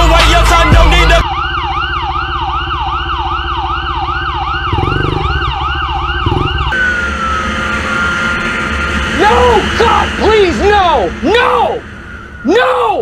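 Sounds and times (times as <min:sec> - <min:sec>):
emergency siren yelping: 0:00.0 - 0:13.0
thin falling whine: 0:04.8 - 0:13.0.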